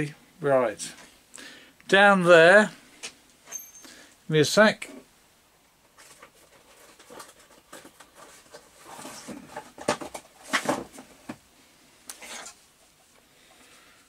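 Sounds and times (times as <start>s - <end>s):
objects being handled: 5.8s - 11.4s.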